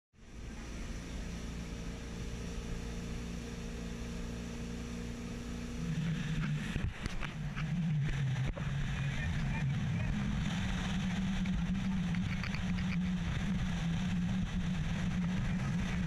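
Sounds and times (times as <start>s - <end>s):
boat engine running: 0.2s - 16.0s
wind on microphone: 6.0s - 16.0s.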